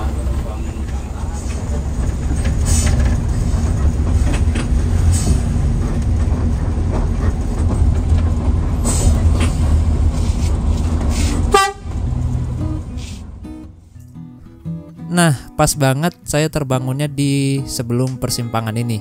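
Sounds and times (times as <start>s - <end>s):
coach cabin rumble: 0.0s - 13.9s.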